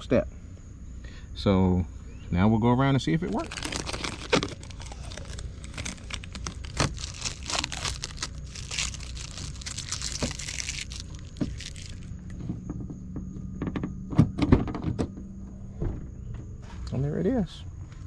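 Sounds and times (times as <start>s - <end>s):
plastic film crinkling and tearing: 3.2s - 12.1s.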